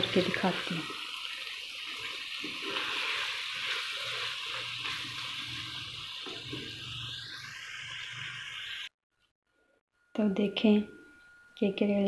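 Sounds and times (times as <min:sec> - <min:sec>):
curry sizzling in a pan: 0:00.0 - 0:08.9
wooden spatula stirring: 0:01.9 - 0:06.7.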